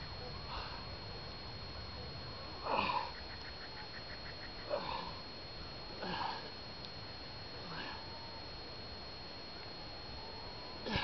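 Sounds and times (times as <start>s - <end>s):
man grunting with effort: 2.6s - 3.1s, 4.7s - 5.2s, 6.0s - 6.5s, 7.6s - 8.0s.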